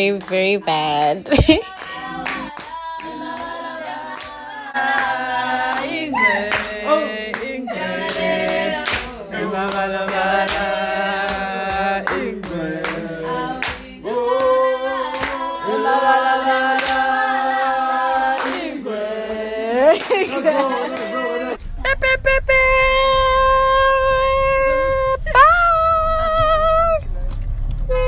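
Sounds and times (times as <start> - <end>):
group singing a dance song: 0.0 - 21.6
hand claps: 1.0 - 15.5, 16.6 - 17.8, 18.4 - 21.2.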